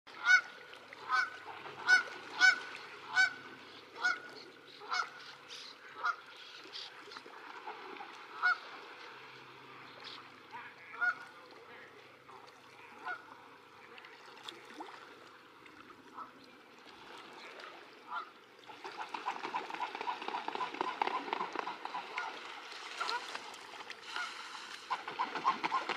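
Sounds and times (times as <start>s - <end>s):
splashing and wing-flapping on water: 0.2s - 5.2s, 6.9s - 15.1s, 16.8s - 25.9s
goose honking: 0.2s - 5.3s, 6.0s - 6.2s, 8.4s - 8.6s, 10.0s - 11.3s, 12.8s - 13.4s, 19.0s - 23.4s.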